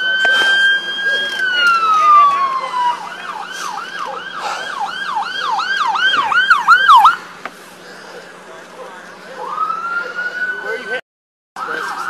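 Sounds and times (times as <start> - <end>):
police siren wailing and yelping: 0.0 - 7.2, 9.2 - 11.0, 11.6 - 12.0.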